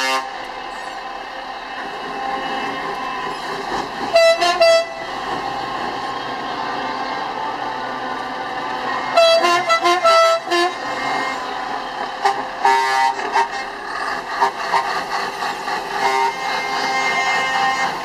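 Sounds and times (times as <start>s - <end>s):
truck air horn toots: 0.0s - 0.4s, 4.1s - 5.1s, 9.1s - 11.4s, 12.2s - 13.8s, 16.0s - 18.0s
truck engine drone: 0.0s - 18.0s.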